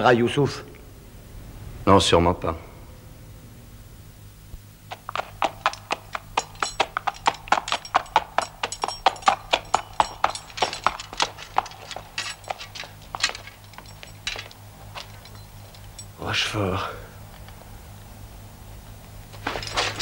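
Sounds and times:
low steady hum: 0.0 - 20.0
horse hooves clopping: 4.8 - 16.2, 18.8 - 20.0.

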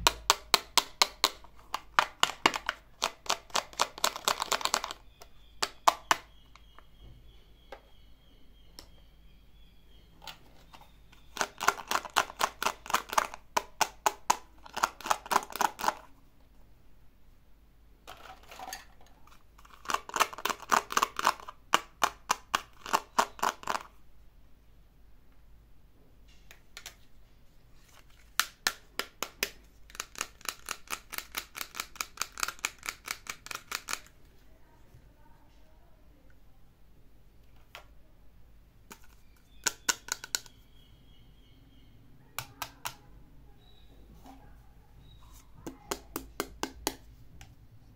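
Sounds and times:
fingers tapping on plastic toys: 0.0 - 6.9, 11.1 - 16.1, 19.8 - 23.9, 28.4 - 34.1, 38.9 - 40.6, 42.4 - 43.1, 45.6 - 47.1.

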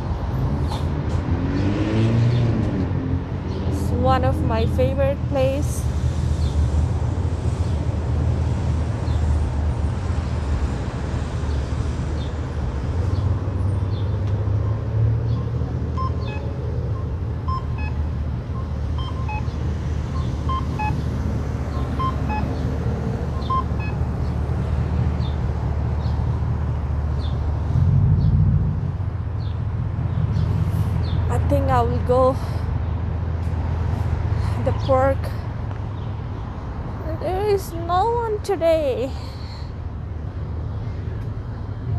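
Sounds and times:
street traffic rumble: 0.0 - 41.9
short electronic beeps: 15.9 - 21.0, 22.0 - 22.6, 23.4 - 24.1.

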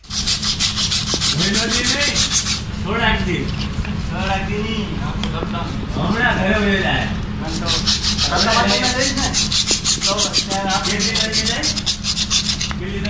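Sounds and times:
sandpaper rubbing on metal shaft: 0.0 - 4.7, 5.5 - 12.8.

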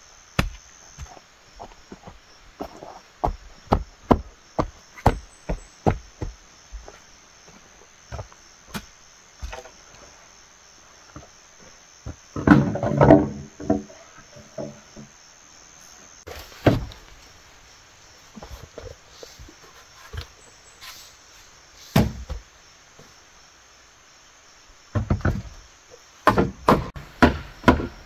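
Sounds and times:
insects droning: 0.0 - 28.0
bamboo poles clattering: 12.3 - 15.1, 26.2 - 28.0.

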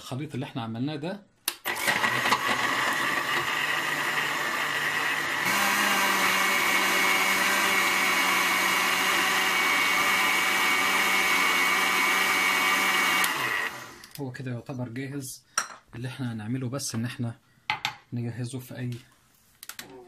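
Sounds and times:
blender motor running: 1.6 - 14.2.

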